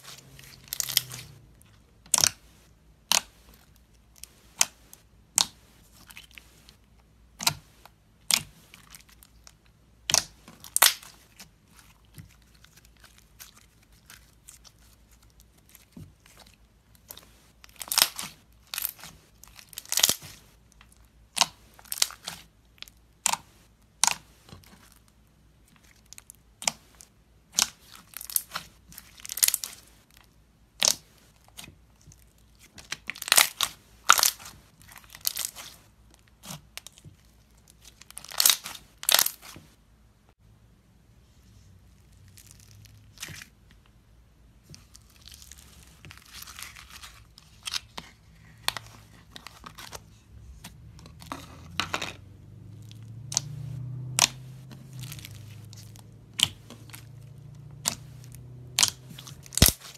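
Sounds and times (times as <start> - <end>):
slime beads crackling and popping: 10.1 - 16.4, 17.7 - 20.4, 27.6 - 29.8, 32.8 - 35.8, 37.8 - 39.6, 54.2 - 58.0, 58.6 - 59.9.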